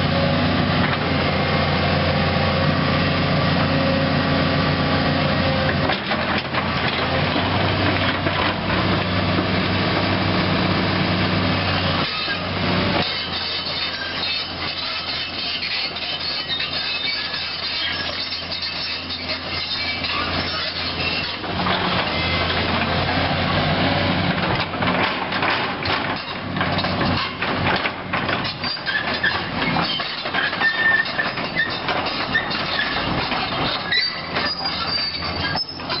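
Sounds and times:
diesel excavator engine running: 0:00.0 - 0:36.0
steel tracks clanking and squealing: 0:11.6 - 0:23.4, 0:24.2 - 0:36.0.

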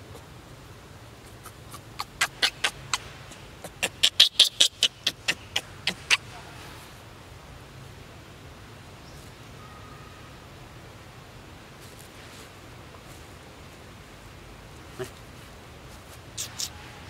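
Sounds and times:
baby monkey squeaking: 0:01.4 - 0:06.2, 0:16.4 - 0:17.0.

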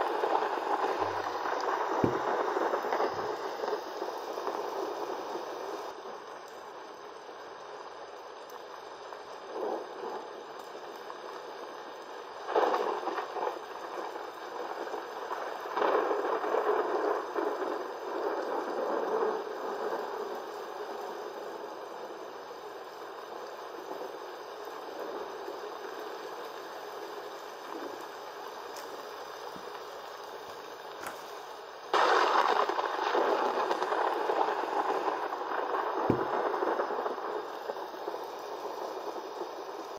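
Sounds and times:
running water: 0:00.0 - 0:04.4
rain rushing: 0:00.0 - 0:39.9
short low thud: 0:02.0 - 0:02.3.

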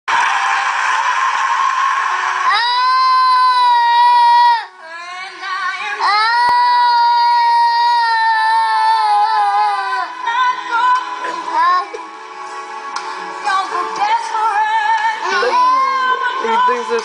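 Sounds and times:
toddler singing: 0:05.9 - 0:10.2, 0:15.0 - 0:16.4.

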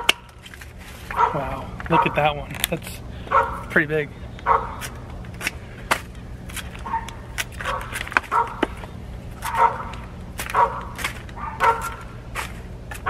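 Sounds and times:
steady low hum: 0:00.0 - 0:13.0
dog barking: 0:01.1 - 0:02.2, 0:03.3 - 0:03.7, 0:04.4 - 0:04.8, 0:06.8 - 0:08.6, 0:09.4 - 0:12.1
hand pruners snipping stems: 0:04.8 - 0:13.0.

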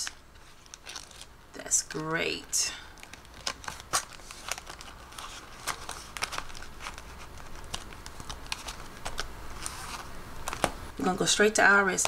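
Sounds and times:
banknotes rustling: 0:00.0 - 0:11.0.

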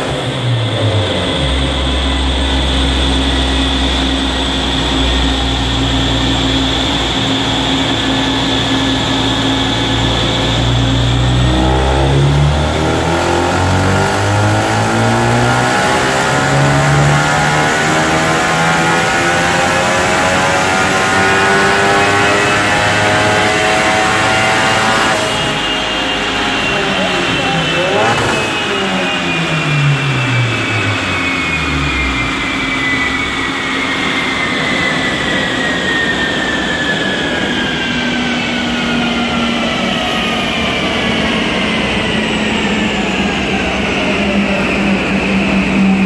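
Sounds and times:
car engine revving on dyno: 0:00.0 - 0:46.0.

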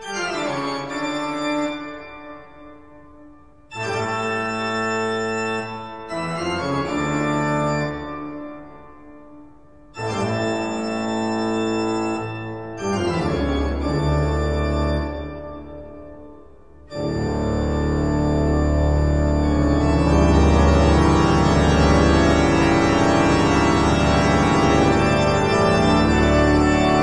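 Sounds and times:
slow organ chords: 0:10.0 - 0:27.0.

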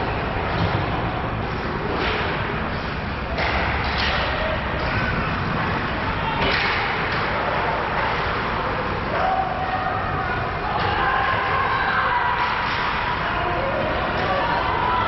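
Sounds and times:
murmur of spectators: 0:00.0 - 0:15.0
puck and stick slaps: 0:01.7 - 0:09.2, 0:12.4 - 0:13.2.

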